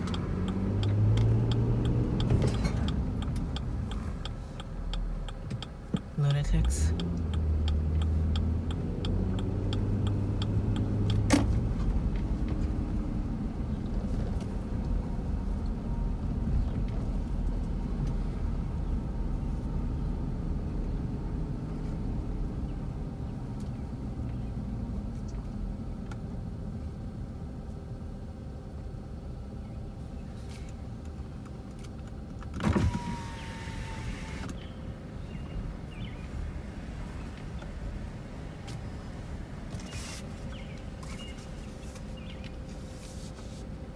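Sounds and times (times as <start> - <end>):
car engine and tyres rumbling: 0.0 - 43.9
electric window motor whining: 32.6 - 34.5.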